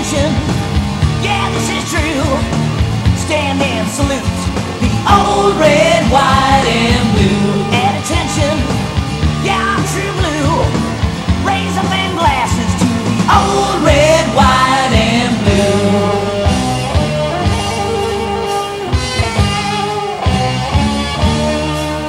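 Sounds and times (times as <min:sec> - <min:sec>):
hard rock band playing: 0:00.0 - 0:22.0
high wavering lead guitar: 0:00.0 - 0:22.0.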